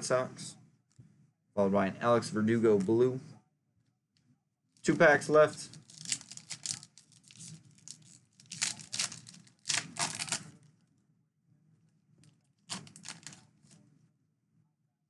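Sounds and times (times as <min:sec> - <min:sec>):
wrapper tearing and crinkling: 0:05.6 - 0:10.7, 0:12.7 - 0:13.5.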